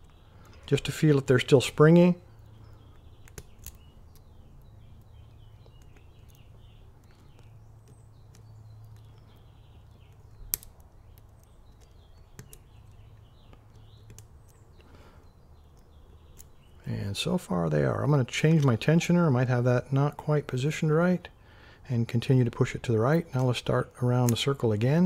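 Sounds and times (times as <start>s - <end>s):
metal probe clicking against lock pins: 2.4s - 14.9s.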